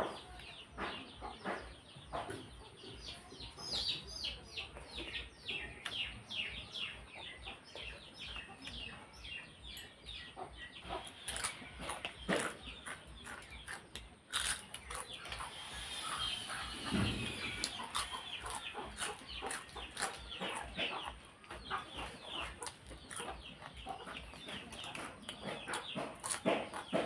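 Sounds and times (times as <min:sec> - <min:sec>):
birds chirping: 0:00.0 - 0:27.0
wet eating sounds: 0:11.0 - 0:27.0.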